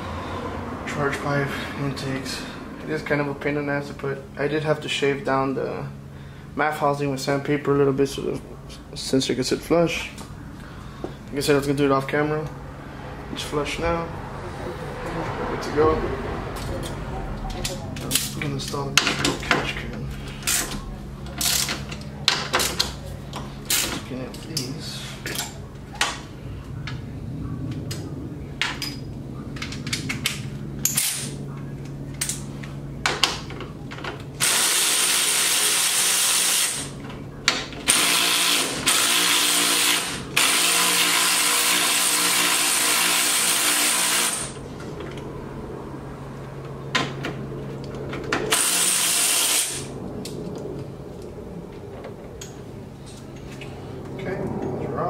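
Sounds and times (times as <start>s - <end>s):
low hum: 0.0s - 34.6s, 44.4s - 55.0s
tools clicking against metal: 29.6s - 31.3s
power drill running: 34.4s - 37.0s, 37.9s - 44.6s, 48.5s - 49.9s.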